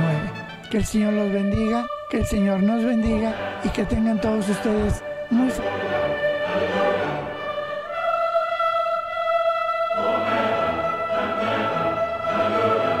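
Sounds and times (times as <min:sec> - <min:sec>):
orchestral music: 0:00.0 - 0:13.0.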